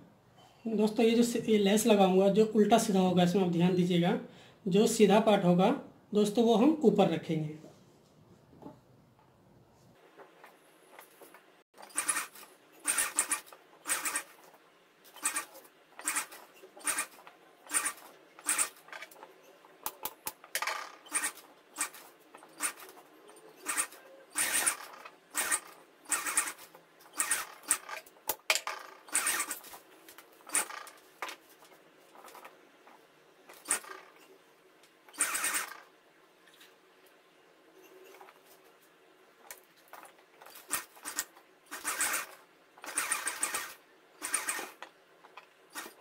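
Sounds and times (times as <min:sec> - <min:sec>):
sewing machine stitching: 0:10.9 - 0:31.0, 0:33.5 - 0:34.3, 0:35.1 - 0:35.9, 0:40.4 - 0:46.0.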